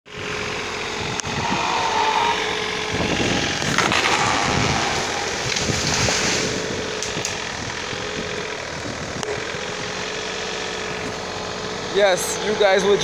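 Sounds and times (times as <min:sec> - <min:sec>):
diesel engine running: 0:00.1 - 0:13.0
burst of clatter: 0:03.6 - 0:07.4.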